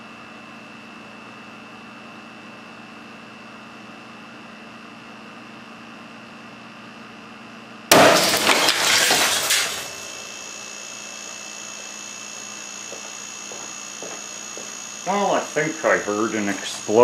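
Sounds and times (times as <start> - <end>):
glass bottle bursting bang: 7.9 - 9.8
glass shattering: 7.9 - 10.2
air compressor humming: 7.9 - 17.0.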